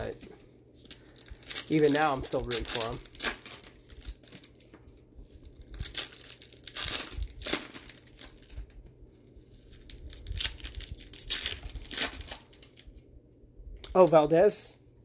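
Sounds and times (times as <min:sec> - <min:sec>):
plastic wrappers crinkling and tearing: 0:00.0 - 0:08.8, 0:09.6 - 0:13.0.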